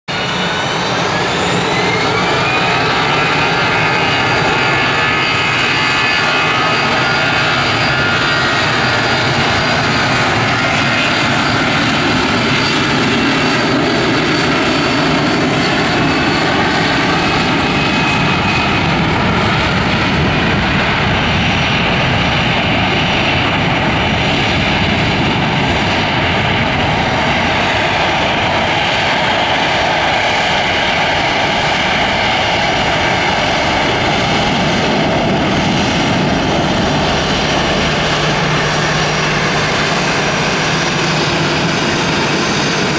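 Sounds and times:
jet engines roaring at takeoff: 0.0s - 42.9s.

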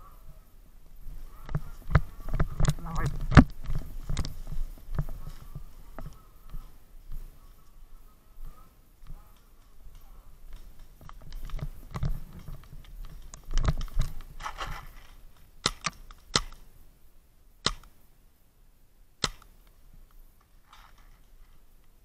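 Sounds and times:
rustling: 0.0s - 17.2s, 19.4s - 22.0s
dull thumps from movement: 1.4s - 7.3s
paintball markers firing: 15.6s - 16.6s, 17.6s - 18.0s, 19.2s - 19.6s.

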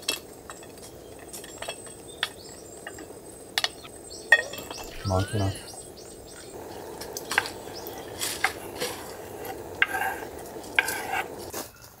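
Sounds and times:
pancake sizzling in a pan: 6.4s - 11.6s.

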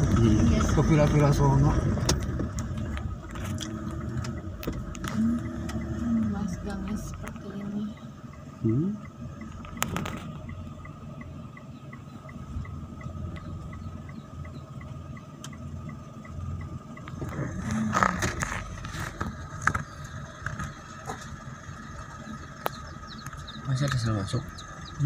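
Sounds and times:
car engine and tyre rumble: 0.0s - 25.0s
faint ticking: 2.0s - 18.2s.

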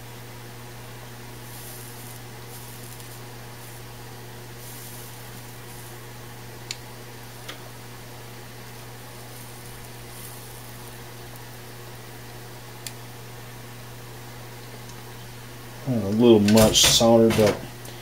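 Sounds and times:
steady low hum: 0.0s - 18.0s
flux sizzling: 1.3s - 7.4s, 8.5s - 11.8s.

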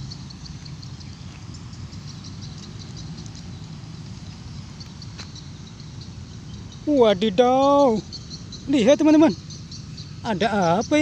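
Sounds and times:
steady low rumble: 0.0s - 8.7s
insects chirping: 0.0s - 11.0s.

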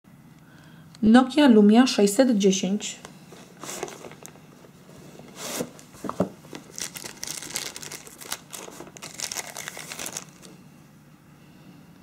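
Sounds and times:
plastic wrapping crinkling: 3.6s - 4.4s, 5.5s - 10.6s.

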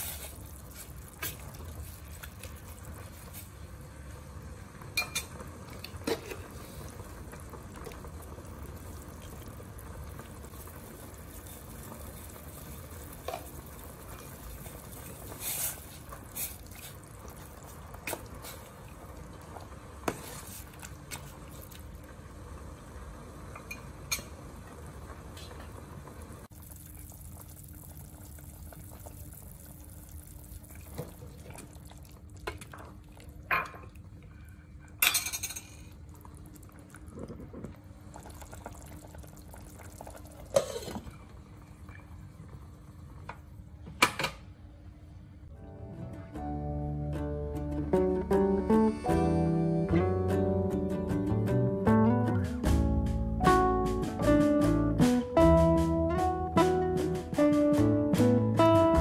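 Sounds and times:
soup bubbling: 0.0s - 35.0s, 35.7s - 43.3s.

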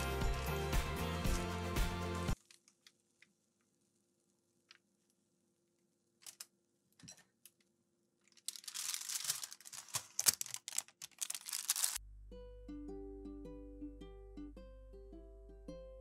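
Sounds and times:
cooking paper crinkling: 8.2s - 12.0s.

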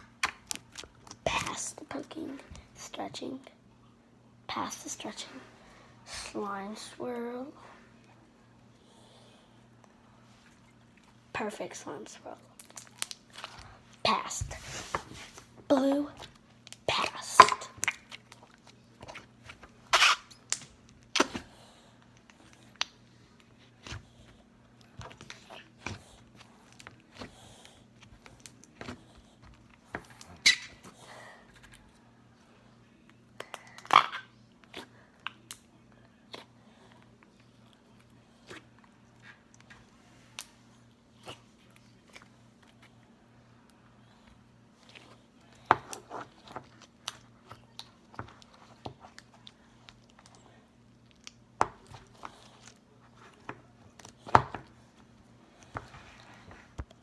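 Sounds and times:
slime squishing with sticky clicks: 0.0s - 1.6s.

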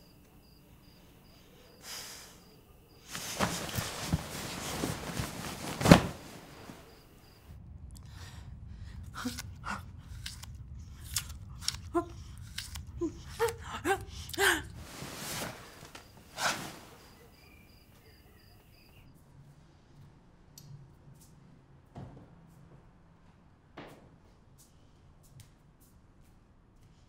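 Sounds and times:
apple crunching bites and chewing: 9.1s - 13.5s.

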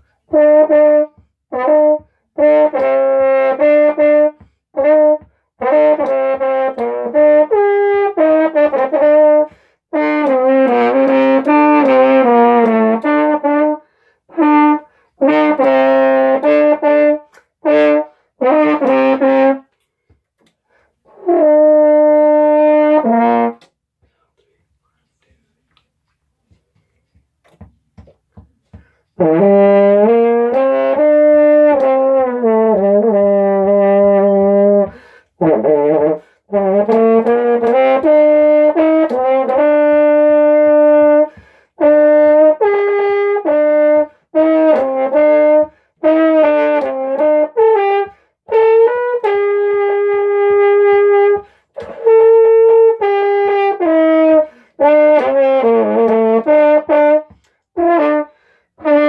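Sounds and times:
french horn playing: 0.0s - 19.8s, 21.0s - 23.7s, 29.1s - 59.0s.

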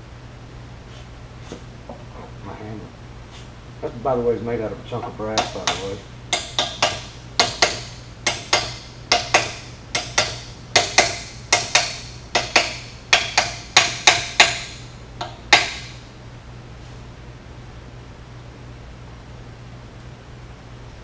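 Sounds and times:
hammer tapping metal: 5.3s - 16.0s.

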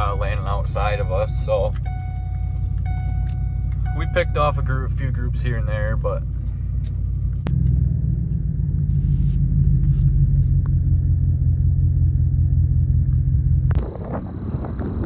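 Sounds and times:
truck rumbling from inside cab: 0.0s - 15.0s.

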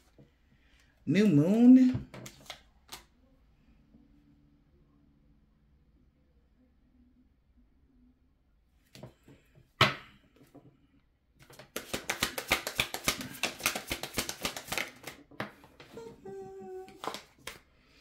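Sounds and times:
sharp tap of cards: 11.4s - 15.5s
cards clicking while shuffled: 11.4s - 16.0s, 16.9s - 17.6s.

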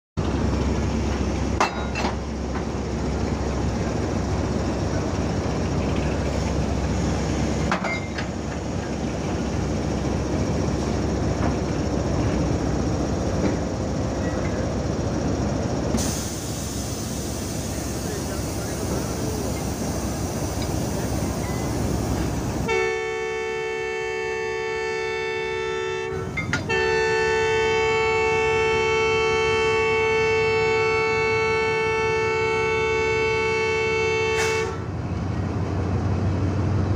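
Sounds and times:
diesel locomotive engine rumbling: 0.2s - 36.9s.

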